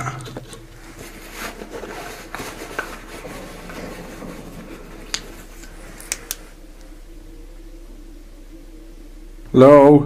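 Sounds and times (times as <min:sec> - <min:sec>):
rubbing and rustling: 0:00.3 - 0:07.1.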